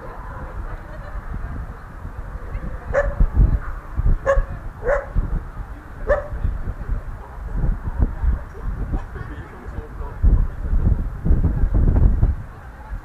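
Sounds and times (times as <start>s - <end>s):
puppy barking: 2.9s - 3.2s, 4.2s - 5.2s, 6.1s - 6.4s.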